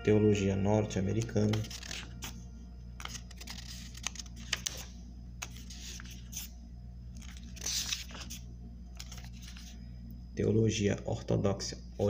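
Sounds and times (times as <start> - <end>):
faint low hum: 0.0 - 12.0
thin paper pages turning: 1.2 - 2.4, 3.0 - 6.5, 7.1 - 9.8.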